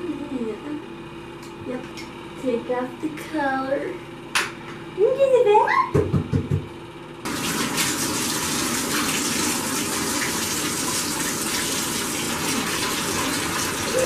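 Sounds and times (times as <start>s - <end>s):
faucet water gushing into tub: 7.2s - 14.0s.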